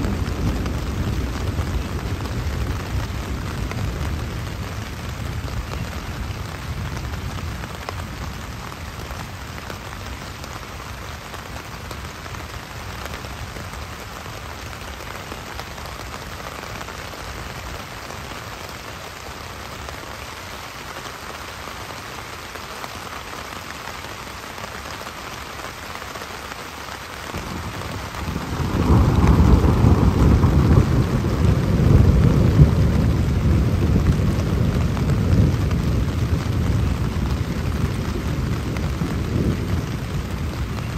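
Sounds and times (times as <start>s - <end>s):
heavy rain on tarp: 0.0s - 40.9s
thunder rolling: 27.3s - 40.9s.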